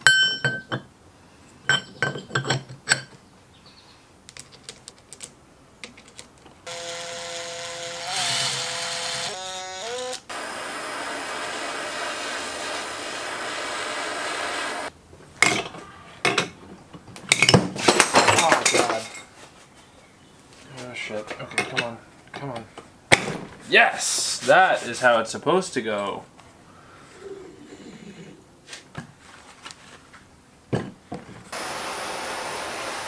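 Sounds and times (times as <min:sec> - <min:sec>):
metal bolts clinking: 0:00.0 - 0:00.9
power tool running: 0:06.7 - 0:14.9, 0:31.6 - 0:33.0.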